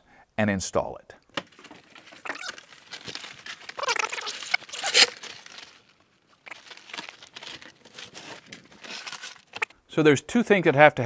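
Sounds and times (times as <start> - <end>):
feet shuffling: 1.8 - 9.6.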